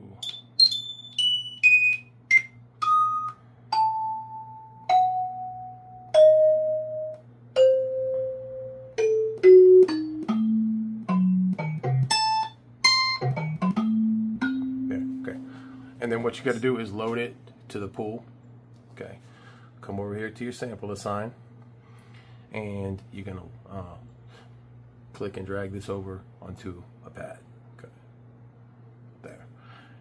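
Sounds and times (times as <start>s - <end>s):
single keyboard notes: 0.2s - 15.8s.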